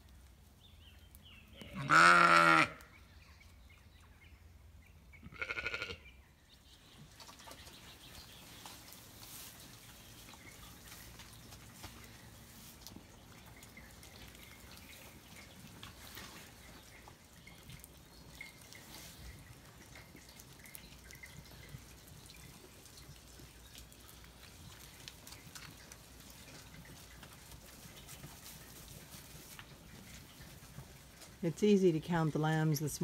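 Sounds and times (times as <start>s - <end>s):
faint rain dripping: 7.0s - 33.0s.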